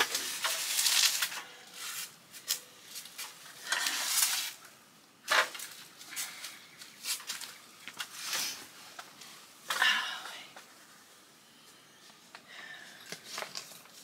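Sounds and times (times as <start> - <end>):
stepladder scraping and rustling: 0.0 - 4.6.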